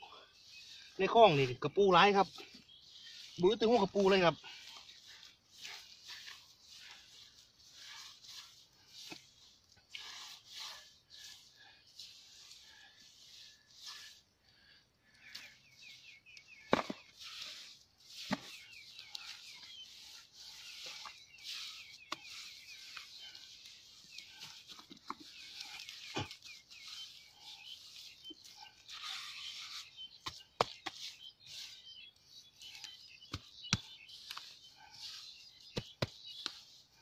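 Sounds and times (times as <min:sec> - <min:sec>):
hands scraping and patting mud: 0:00.1 - 0:37.0.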